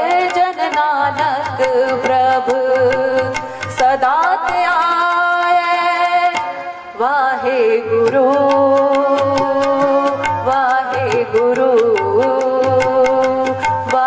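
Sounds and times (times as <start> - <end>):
tabla strokes: 0.0 - 14.0
woman singing into microphone: 0.0 - 14.0.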